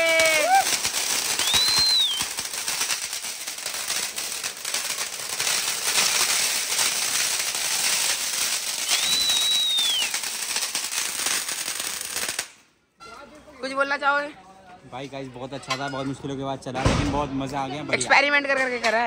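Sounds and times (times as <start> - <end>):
firecrackers crackling: 0.0 - 12.8
high rising whistle: 1.4 - 2.3, 8.8 - 10.2.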